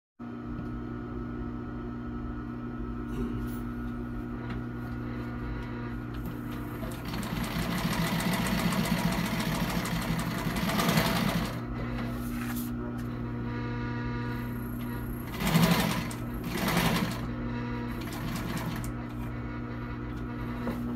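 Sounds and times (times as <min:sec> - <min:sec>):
steady hum: 0:00.2 - 0:20.9
sewing machine stitching: 0:06.5 - 0:11.7, 0:14.8 - 0:17.3, 0:17.9 - 0:19.0.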